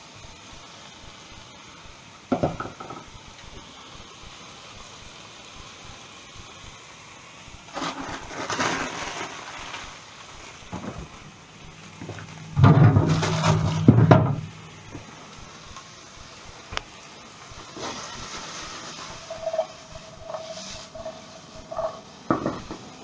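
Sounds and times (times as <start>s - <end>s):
rustle: 7.7s - 11.1s, 16.7s - 22.0s
fridge opening clatter: 12.6s - 14.5s.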